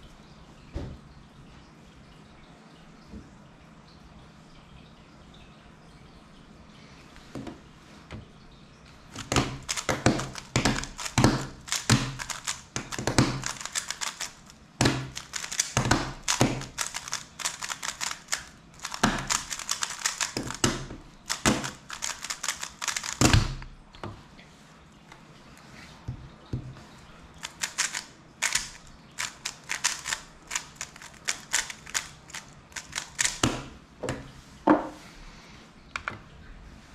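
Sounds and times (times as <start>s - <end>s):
puzzle cube clacking turns: 9.2s - 23.7s, 27.4s - 33.7s.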